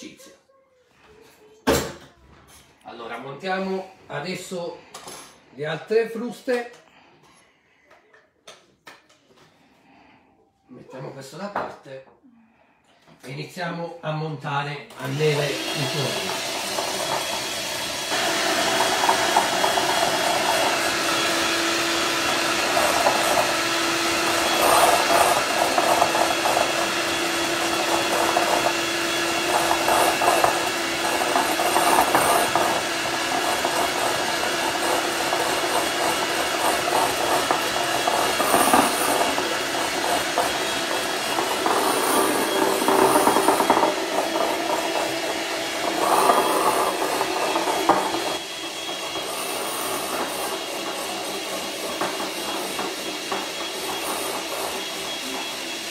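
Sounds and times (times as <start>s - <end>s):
electric hand mixer whipping: 14.9s - 55.9s.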